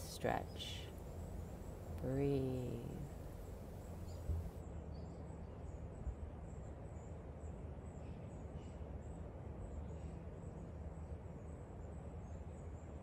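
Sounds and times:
steady low rumble: 0.0 - 4.6.

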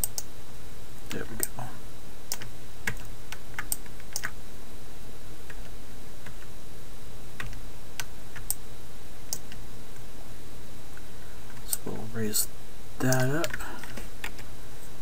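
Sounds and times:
keyboard and mouse clicking: 0.0 - 0.3, 2.3 - 4.3, 7.4 - 8.6
low electrical hum and hiss: 0.0 - 15.0.

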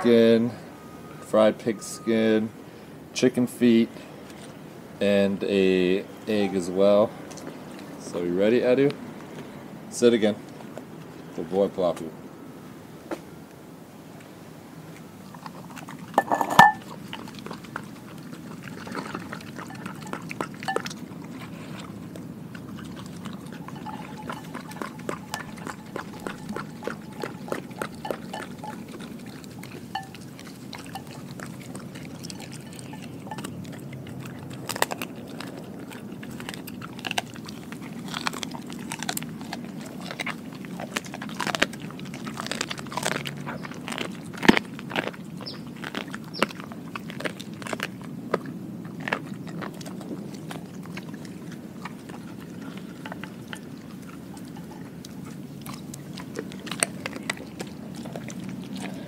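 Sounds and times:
dog chewing and crunching bones: 0.0 - 2.1, 3.4 - 12.1, 14.1 - 59.0
glass bowl knocking on concrete: 16.2 - 16.8.

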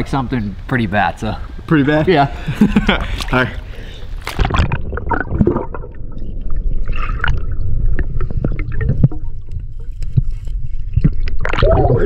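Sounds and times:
bubbles: 4.3 - 12.0
underwater low rumble: 4.4 - 12.0.

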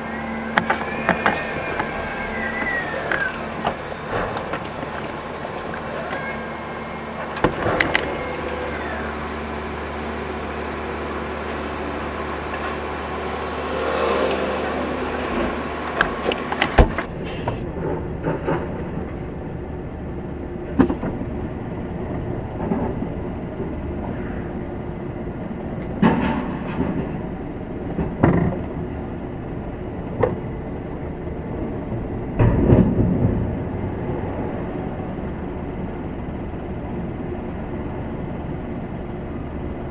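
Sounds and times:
truck cab hum and hiss: 15.8 - 17.8
knocks and clanks: 25.9 - 27.3, 27.9 - 28.7, 32.4 - 33.6.

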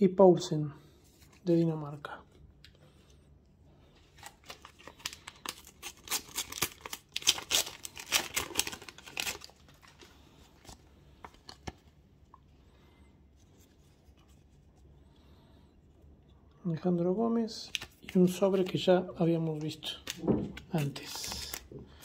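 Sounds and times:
paper packet tearing: 4.2 - 11.8, 19.5 - 21.7.

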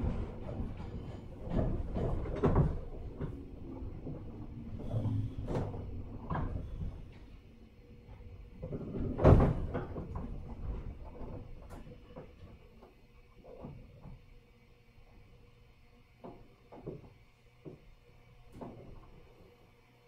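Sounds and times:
train knocks and clunks: 0.0 - 13.0
train low hum: 0.0 - 20.0.

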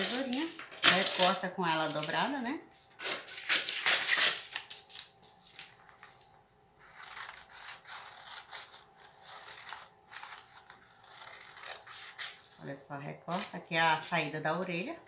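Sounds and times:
paper rustling: 3.0 - 12.7
scissors snipping paper: 6.9 - 12.5.

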